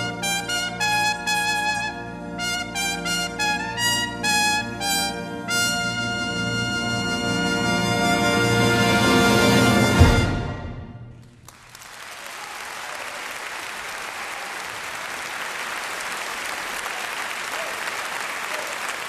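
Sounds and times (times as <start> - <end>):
audience applauding: 11.2 - 19.0.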